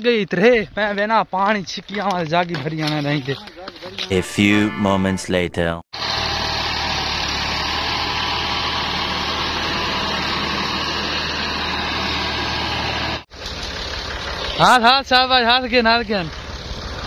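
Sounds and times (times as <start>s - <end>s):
tractor diesel engine under load: 6.0s - 17.0s.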